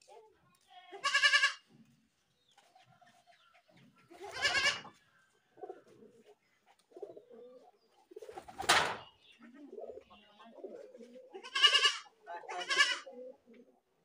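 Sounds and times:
goat kid bleating: 0:00.8 - 0:01.8, 0:04.1 - 0:05.0, 0:11.3 - 0:13.1.

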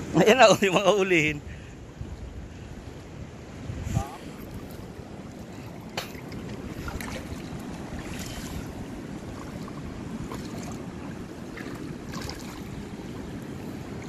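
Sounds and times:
wind rumbling on microphone: 0:01.2 - 0:14.0
faint water splashes: 0:03.8 - 0:14.0.

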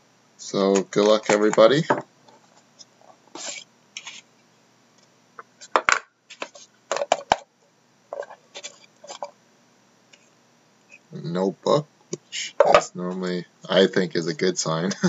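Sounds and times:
card box clicks and scrapes: 0:03.3 - 0:04.2.

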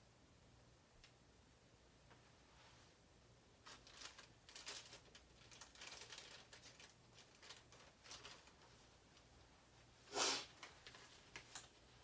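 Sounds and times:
plastic bag crinkling: 0:03.6 - 0:08.8.

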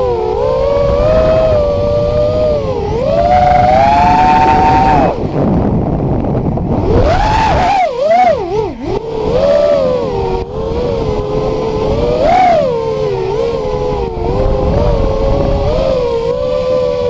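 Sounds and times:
drone motors whining: 0:00.0 - 0:17.0
rushing noise: 0:00.8 - 0:09.5.

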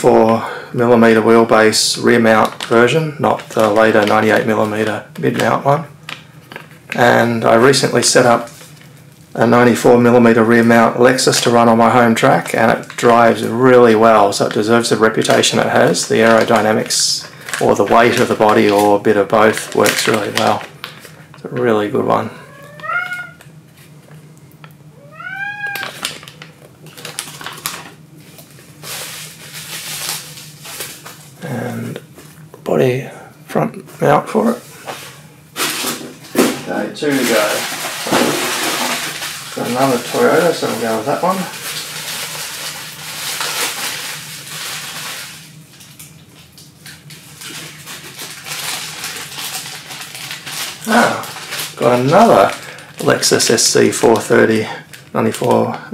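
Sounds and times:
plastic bags crinkling: 0:01.4 - 0:09.8, 0:10.5 - 0:23.5, 0:25.0 - 0:31.5, 0:35.7 - 0:55.7
cat meowing: 0:22.4 - 0:23.4, 0:24.9 - 0:26.0.

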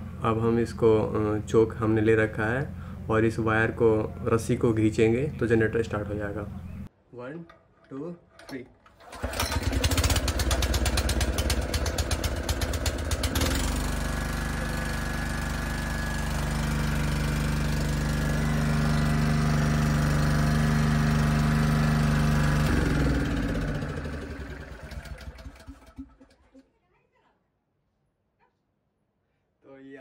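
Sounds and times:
generator engine running: 0:00.0 - 0:06.9, 0:09.0 - 0:26.4
engine winding down: 0:09.0 - 0:26.6.

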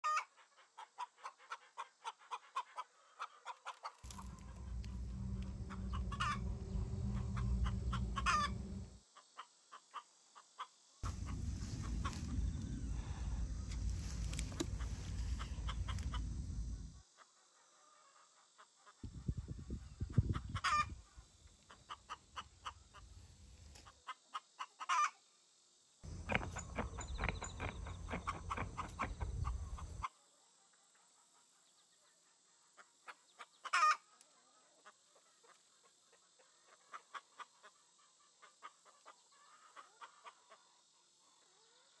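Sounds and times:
chickens clucking: 0:00.0 - 0:25.2, 0:26.0 - 0:30.1, 0:32.7 - 0:41.7
low rumble: 0:04.0 - 0:09.0, 0:11.0 - 0:17.0, 0:26.0 - 0:30.0.

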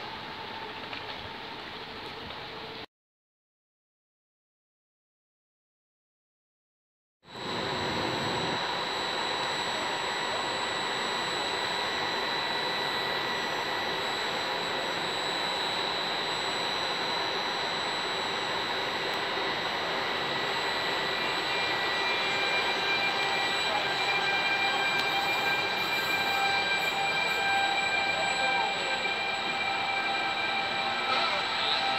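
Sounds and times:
locomotive cooling fans blowing: 0:00.0 - 0:02.8, 0:07.3 - 0:31.9
high electrical whines: 0:07.3 - 0:31.9.

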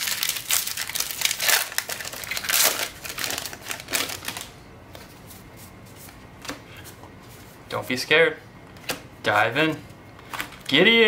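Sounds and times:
foil wrapper tearing and crinkling: 0:00.0 - 0:04.5.

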